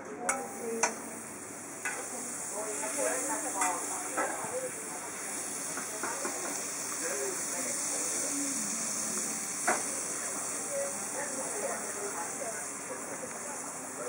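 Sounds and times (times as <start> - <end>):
pancake sizzling in oil: 0.3 - 14.0.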